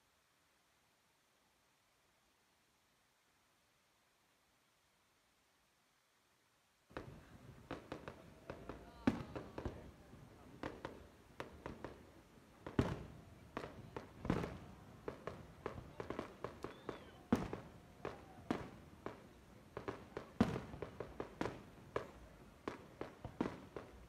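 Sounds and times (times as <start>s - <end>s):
fireworks bangs and crackles: 6.9s - 24.0s
loud fireworks booms: 6.9s - 24.0s.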